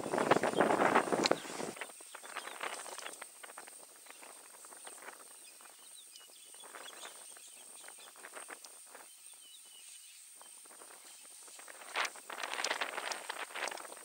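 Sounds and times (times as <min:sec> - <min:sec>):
elephants cracking and rustling bush: 0:00.0 - 0:05.2, 0:10.6 - 0:14.0.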